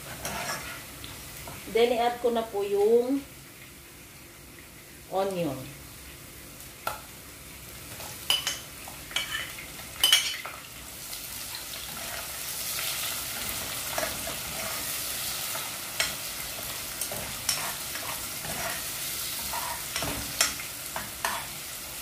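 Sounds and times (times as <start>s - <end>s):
onions sizzling in oil: 0.0s - 22.0s
spoon clinking and scraping: 8.3s - 10.5s.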